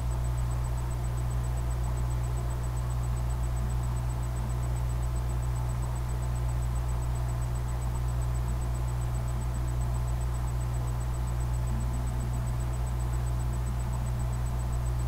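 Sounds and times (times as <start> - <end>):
faint high-pitched whine: 0.0 - 15.0.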